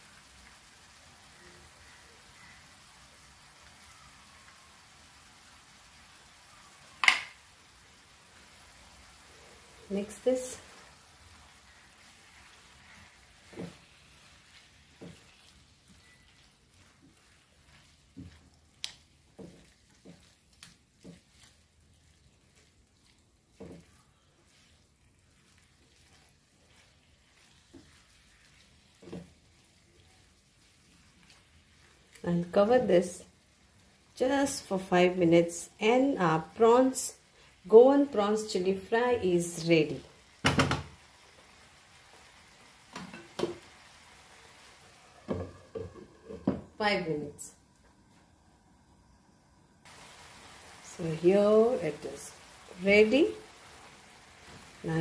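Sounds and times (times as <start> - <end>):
prawns sizzling in a pan: 0.0 - 55.0
spatula scraping frying pan: 12.0 - 32.2.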